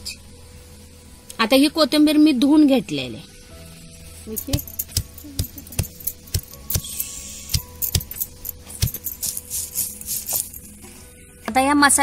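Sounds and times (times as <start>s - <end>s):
metal bangles jingling: 4.3s - 10.8s
stone roller pounding spices: 4.4s - 10.5s.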